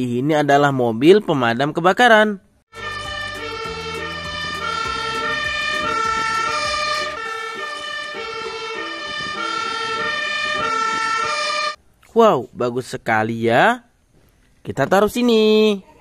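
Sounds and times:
two-tone siren: 2.7 - 11.8
low engine rumble: 2.8 - 11.4.

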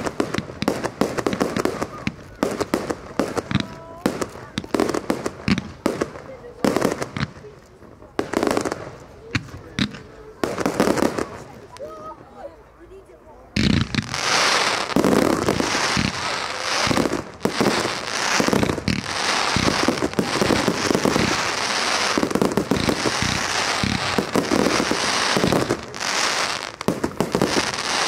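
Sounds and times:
firework crackling: 0.0 - 12.2, 13.6 - 28.0
firework shells bursting: 13.6 - 28.0.

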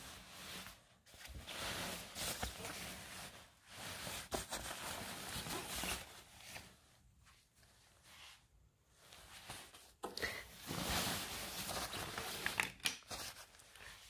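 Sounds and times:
synthetic jacket rustling: 0.0 - 6.8, 10.6 - 12.5.

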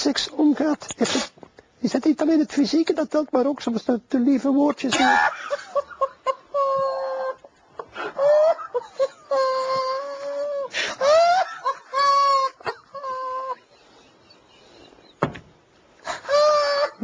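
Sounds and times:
person whimpering and squealing: 9.3 - 11.4, 16.0 - 17.0.

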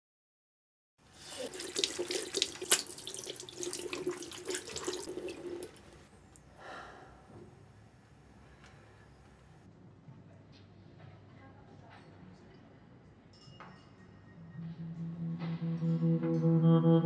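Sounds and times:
tap water splashing into sink: 1.3 - 5.8.

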